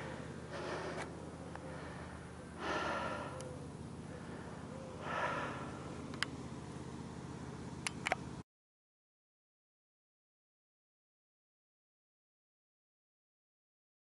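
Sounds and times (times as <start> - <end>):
person breathing sharply: 0.0 - 6.0
steady low hum: 0.0 - 8.4
sharp clicks: 6.1 - 6.4, 7.8 - 8.2.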